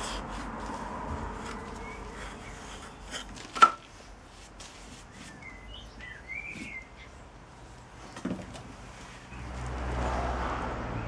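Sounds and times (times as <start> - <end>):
birds chirping: 1.3 - 3.5, 5.0 - 8.3.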